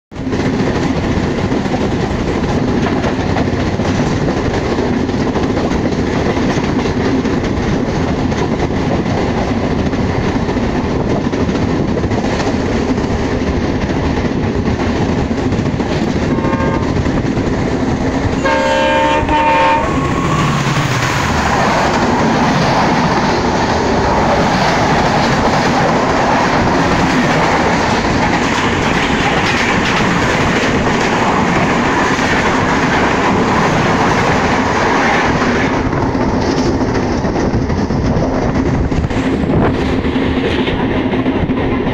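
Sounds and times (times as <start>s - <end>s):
passing train rushing: 0.1s - 41.9s
train clickety-clack on rails: 0.1s - 41.9s
locomotive horn: 16.3s - 17.0s, 18.4s - 20.7s.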